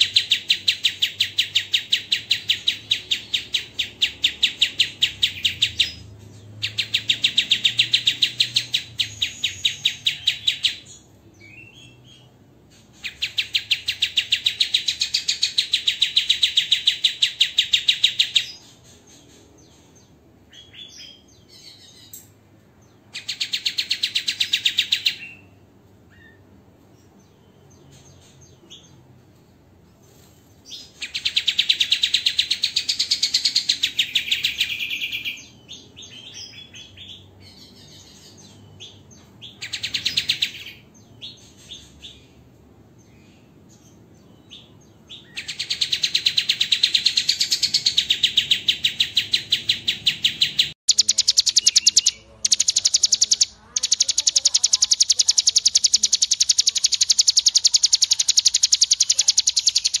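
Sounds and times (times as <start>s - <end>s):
songbird fast trilling calls: 45.4s - 60.0s.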